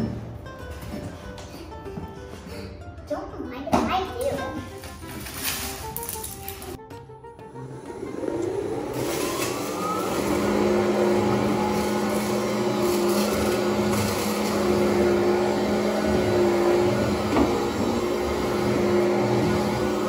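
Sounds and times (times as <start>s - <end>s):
vacuum cleaner motor whine: 7.5s - 20.0s.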